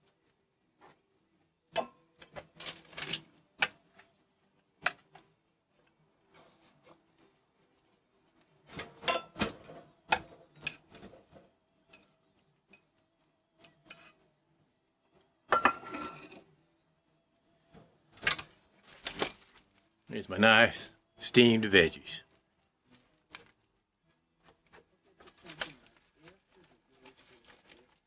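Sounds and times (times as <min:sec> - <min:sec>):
metal tongs and cookware clattering: 0:08.7 - 0:11.2, 0:15.5 - 0:16.4.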